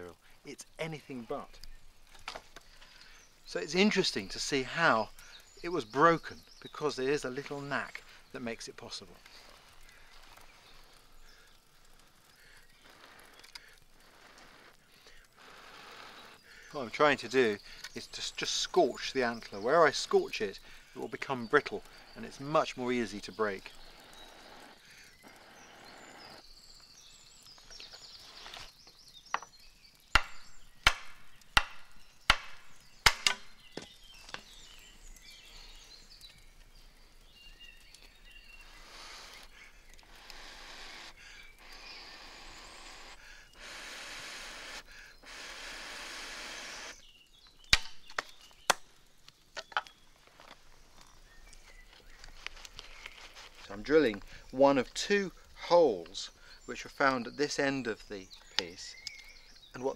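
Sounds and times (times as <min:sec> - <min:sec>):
faint hiss: 0:00.0 - 0:47.2
antler being struck: 0:30.2 - 0:33.6.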